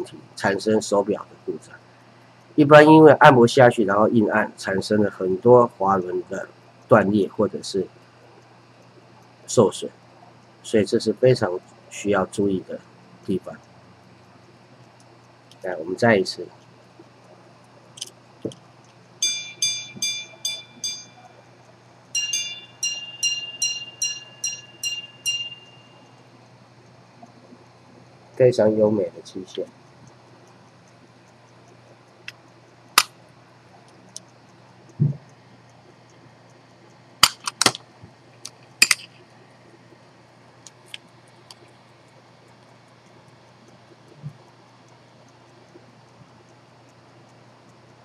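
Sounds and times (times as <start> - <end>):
faint watch ticks: 0.0 - 19.3, 20.4 - 37.2, 37.9 - 48.0
pocket watch gong strikes: 19.2 - 21.3, 22.1 - 26.0
watch mechanism click: 33.8 - 37.8, 38.4 - 39.2.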